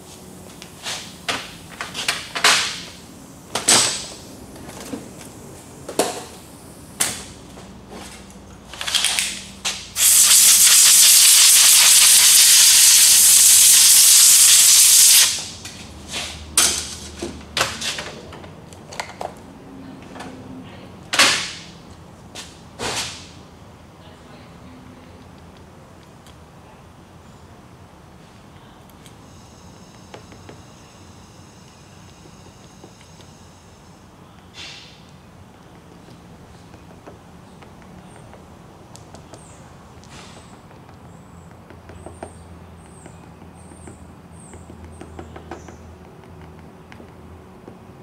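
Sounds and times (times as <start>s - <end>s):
compressed air blow gun hissing: 9.9s - 15.5s.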